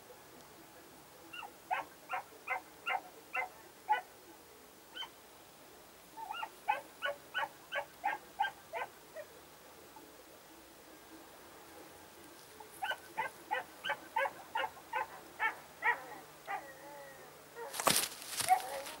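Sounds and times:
dog yipping: 1.3 - 4.0, 6.3 - 8.9, 18.4 - 19.0
rustling: 17.6 - 19.0.

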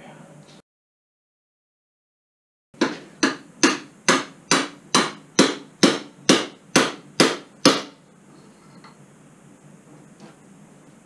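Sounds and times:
hammer striking metal tube: 2.8 - 8.0.

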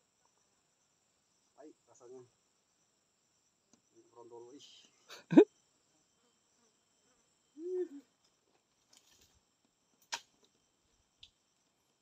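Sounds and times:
insect chirring: 0.0 - 12.0
short hummed vocal sound: 7.6 - 8.1.

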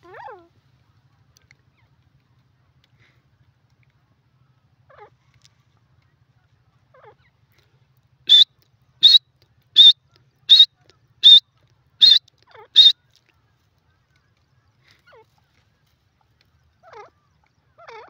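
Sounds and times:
bird calling sharp high notes: 9.8 - 11.4, 12.0 - 13.0
soft low bird notes: 9.8 - 11.4.

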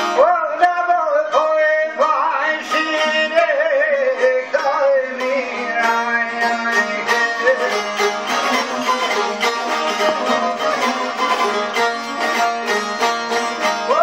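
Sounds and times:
man singing: 0.0 - 9.2, 13.8 - 14.0
strummed lutes: 0.0 - 14.0.

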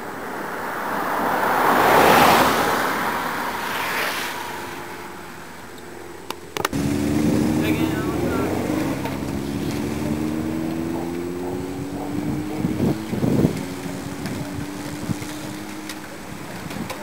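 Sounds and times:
rush of bicycle tyres: 0.0 - 5.7, 12.7 - 17.0
vehicle engine humming: 0.0 - 17.0
wind on microphone: 6.7 - 17.0.

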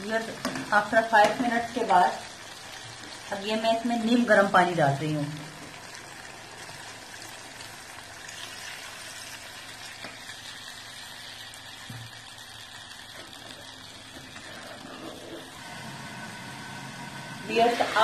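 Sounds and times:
meat sizzling in a pot: 0.0 - 18.0.

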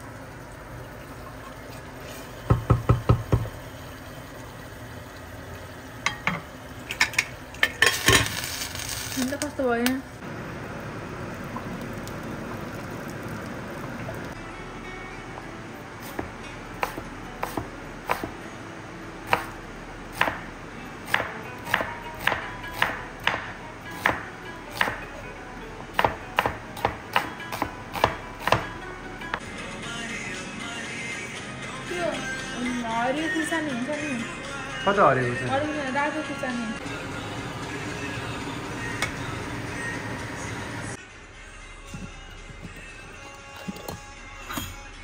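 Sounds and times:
spoon knocking against pot: 2.5 - 3.5
meat sizzling in a pot: 7.0 - 9.9
background music: 14.3 - 45.0.

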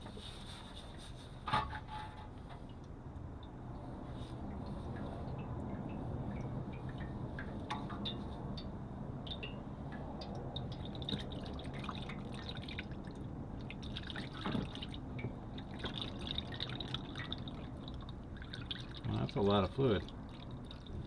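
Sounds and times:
drips and small splashes: 2.2 - 21.0
fluid draining into container: 9.3 - 21.0.

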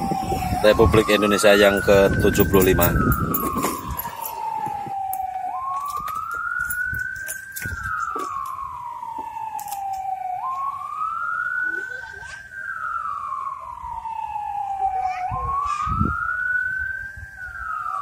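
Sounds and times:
warning siren wailing: 0.0 - 18.0.

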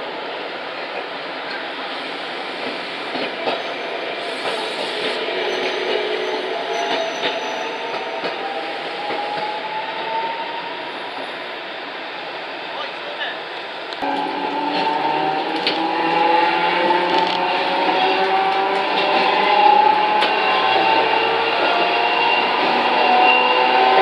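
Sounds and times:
tram rumbling on rails: 0.0 - 24.0
streetcar wheels squealing: 3.4 - 8.1.

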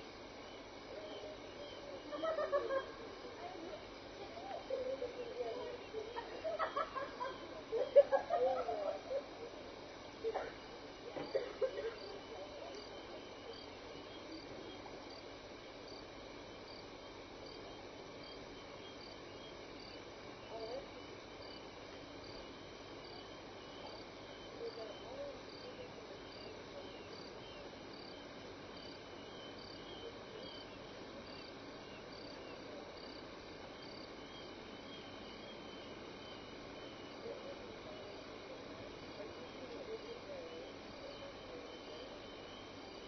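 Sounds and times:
high insect chirp: 0.0 - 43.0
insect trilling chorus: 0.1 - 43.0.

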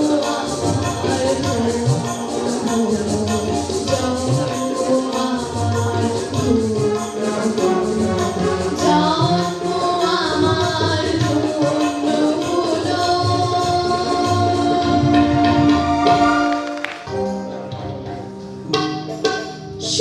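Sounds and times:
jingling percussion beat: 0.0 - 14.8
woman singing into a microphone: 0.0 - 16.1
live band playing: 0.0 - 20.0.

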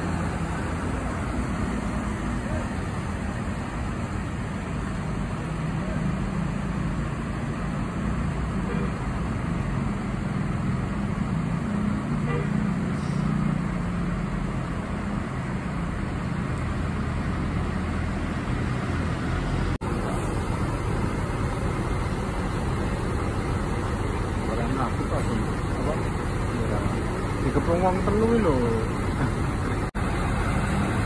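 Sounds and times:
bus diesel engines droning: 0.0 - 31.0
traffic noise: 0.0 - 31.0.

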